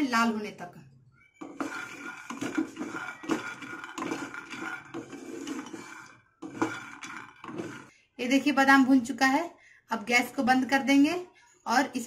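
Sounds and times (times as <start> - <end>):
peanuts rattling in a frying pan: 1.6 - 7.9.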